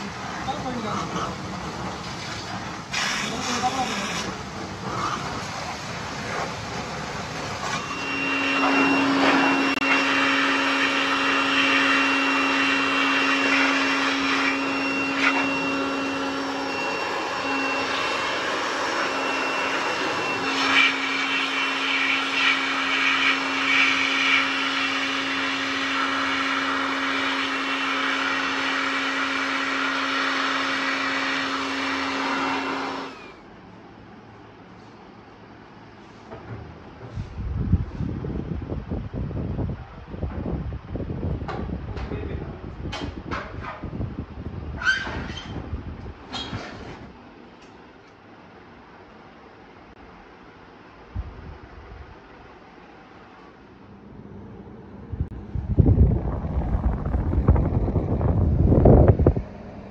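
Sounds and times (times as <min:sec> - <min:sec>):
electric air blower running: 0:02.8 - 0:33.5, 0:54.0 - 0:59.9.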